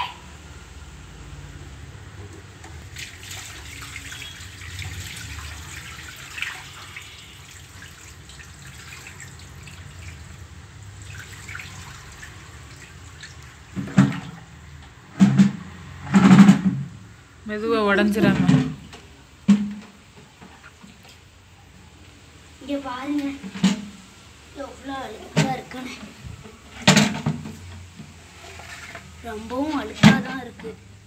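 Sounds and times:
water gushing onto tiled floor: 0:02.7 - 0:14.8, 0:22.4 - 0:31.0.

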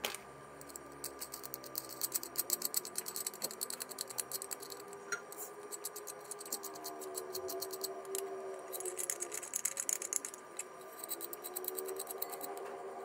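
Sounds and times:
rapid metallic clicking of nut on rod: 0:00.6 - 0:04.8.

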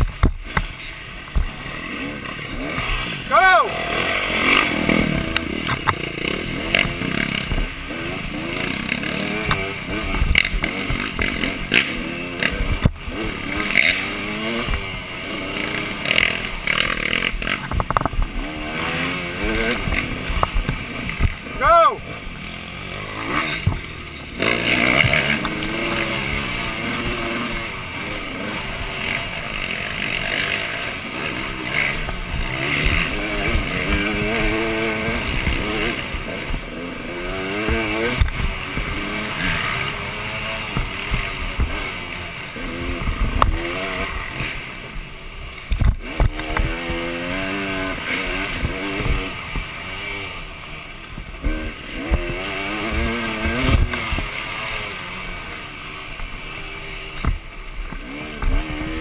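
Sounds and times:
bike knocking on bumps: 0:00.0 - 0:01.6, 0:17.4 - 0:18.4, 0:40.7 - 0:41.8, 0:45.6 - 0:47.3
dirt bike engine revving: 0:00.0 - 0:59.0.

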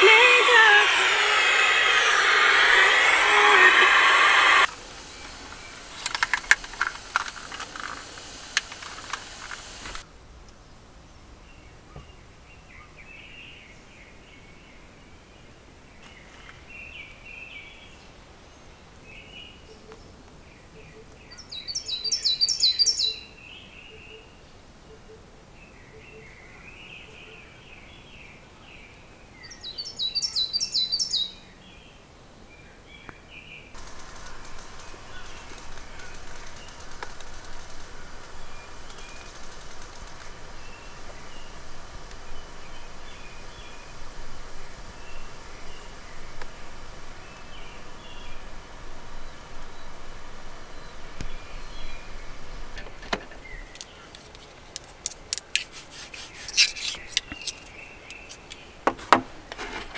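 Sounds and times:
birds chirping: 0:00.0 - 0:10.0, 0:15.9 - 0:31.6, 0:33.0 - 0:54.3, 0:56.1 - 0:58.9
hiss: 0:00.0 - 0:10.1, 0:33.8 - 0:53.9.

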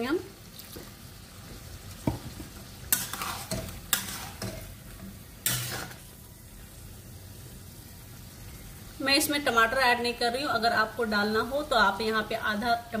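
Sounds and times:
low sizzle from pan: 0:00.0 - 0:13.0
spatula scraping metal pan: 0:02.9 - 0:04.8, 0:05.4 - 0:06.1.

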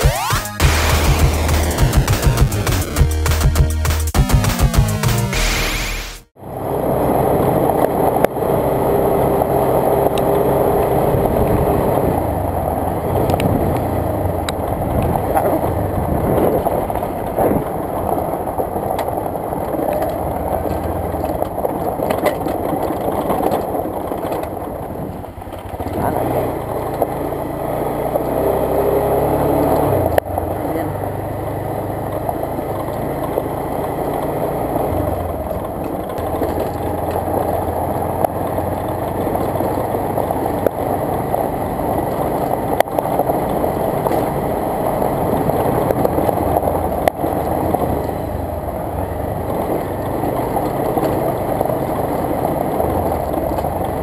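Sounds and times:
sharp knock: 0:00.0 - 0:06.3
motorcycle engine running: 0:00.0 - 0:54.0
wind and road noise: 0:06.3 - 0:54.0.

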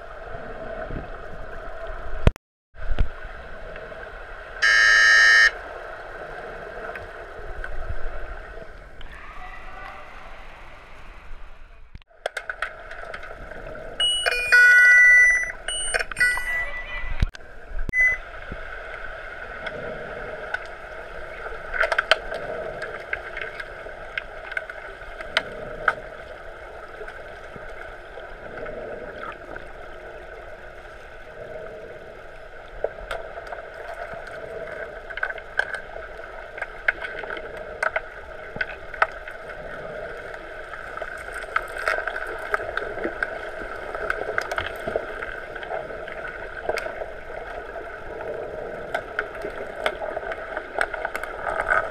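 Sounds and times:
muffled underwater water rushing: 0:00.0 - 0:51.9.

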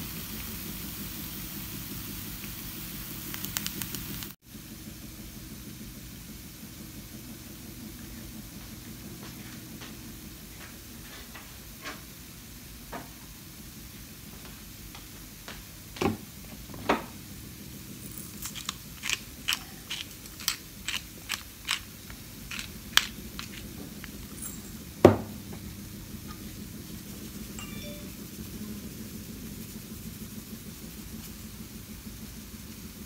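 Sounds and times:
pepper grinder clicks and crackles: 0:03.3 - 0:04.3, 0:18.1 - 0:24.4.

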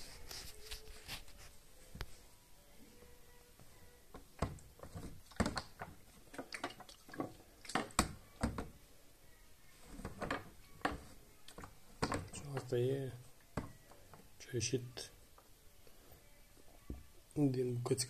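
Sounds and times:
plastic tank knocks and clicks: 0:04.4 - 0:06.0.

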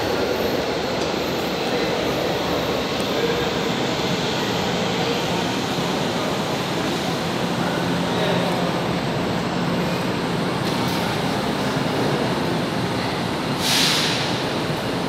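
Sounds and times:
train low hum: 0:00.0 - 0:15.0
compressed air hiss: 0:13.6 - 0:14.4.

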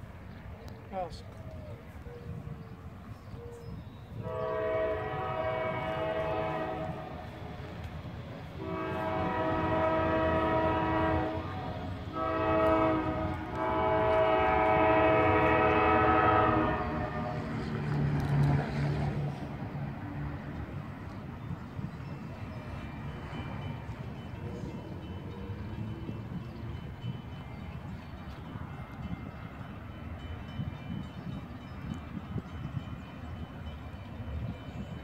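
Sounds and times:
locomotive engine rumbling: 0:00.0 - 0:35.0
locomotive horn blasts: 0:04.1 - 0:07.6, 0:08.5 - 0:17.6.

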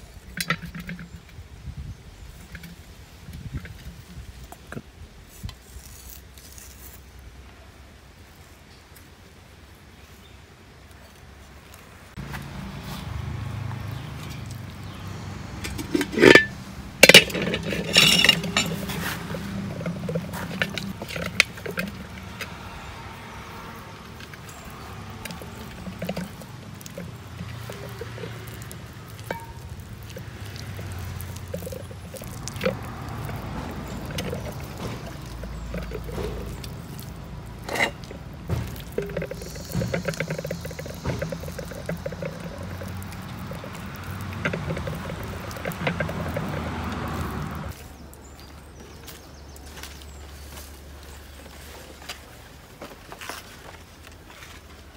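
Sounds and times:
short rattle: 0:15.6 - 0:47.8
hands squelching raw chicken: 0:17.6 - 0:48.2
metal pot knocking on stone: 0:24.5 - 0:47.1.

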